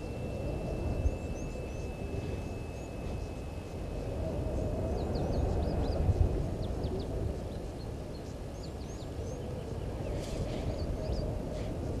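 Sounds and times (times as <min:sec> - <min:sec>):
steady high-pitched tone: 0:00.0 - 0:06.5
bird chirps: 0:00.0 - 0:07.2.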